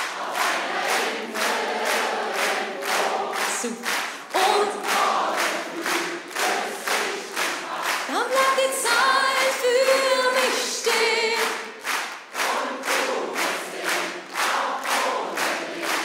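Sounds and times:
crowd clapping in time: 0.0s - 16.0s
crowd singing along: 0.0s - 16.0s
solo voice singing with vibrato: 3.4s - 5.0s, 8.0s - 11.6s.

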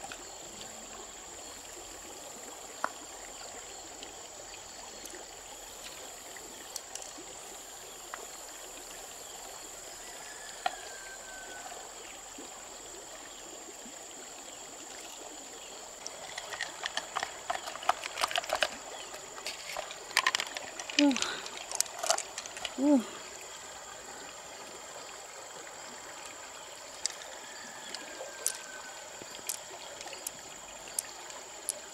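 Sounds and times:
stream running over stones: 0.0s - 31.9s
knife scraping mussel shell: 16.1s - 18.8s, 19.4s - 22.8s.

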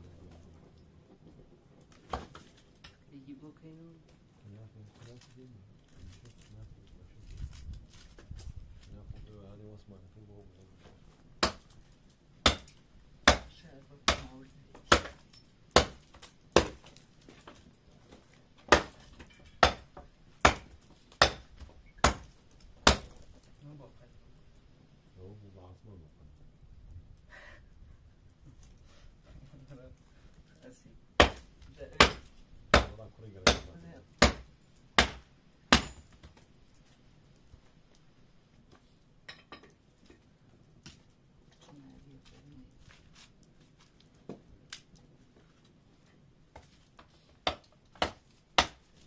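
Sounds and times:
axe chopping firewood: 1.9s - 3.0s, 11.4s - 11.8s, 12.4s - 23.4s, 31.2s - 36.4s, 46.5s - 49.0s.

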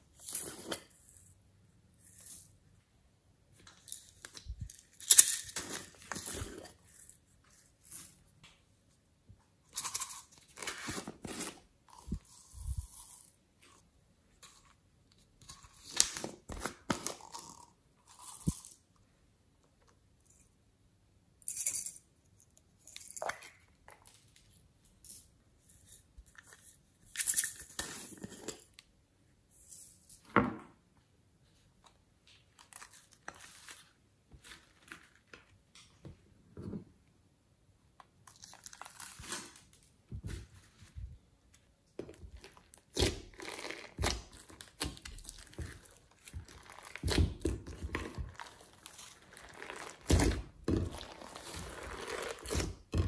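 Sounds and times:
hands rustling slime: 38.5s - 52.9s.

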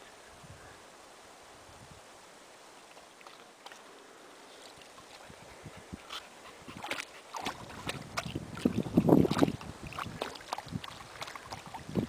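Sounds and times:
water splashing and sloshing: 2.8s - 12.0s.

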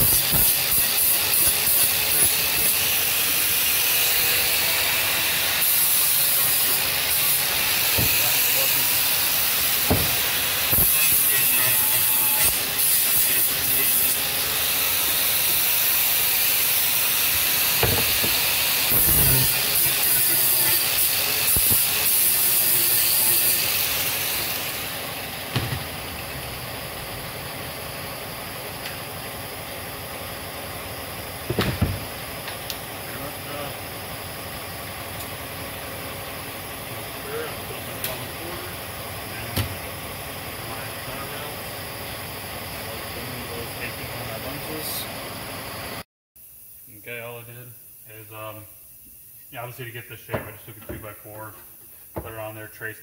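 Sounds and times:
angle grinder sanding wood: 0.0s - 25.1s
knock: 9.9s - 10.2s, 17.8s - 18.3s.

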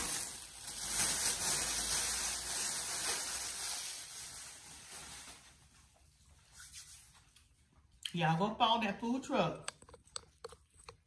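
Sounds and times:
paper food wrap rustling: 0.0s - 7.7s.

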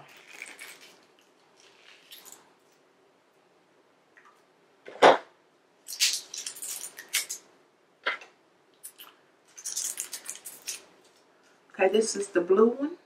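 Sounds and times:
packaging crinkling: 0.0s - 2.8s, 5.9s - 7.4s, 8.9s - 11.2s.

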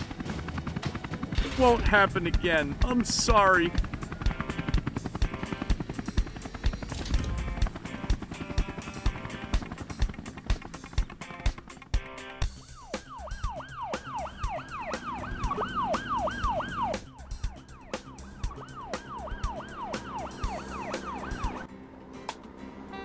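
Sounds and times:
police siren wailing: 12.5s - 21.7s.

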